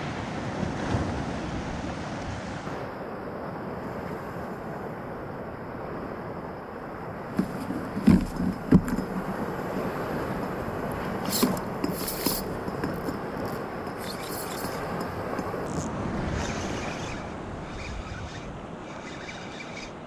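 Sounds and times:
wind and water noise: 0:00.0 - 0:20.0
hissing scrapes: 0:11.0 - 0:17.3.

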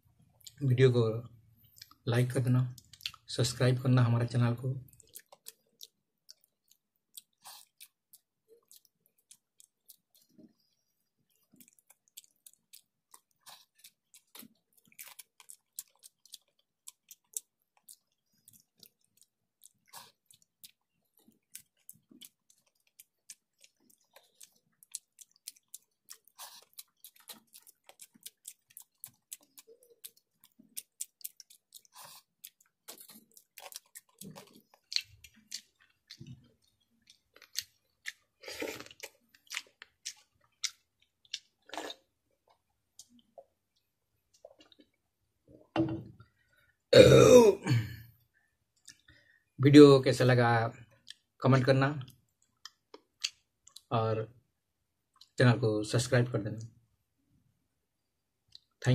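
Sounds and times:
chewing and crunching: 0:02.6 - 0:03.3, 0:04.8 - 0:45.0, 0:50.8 - 0:51.4, 0:52.0 - 0:53.9.

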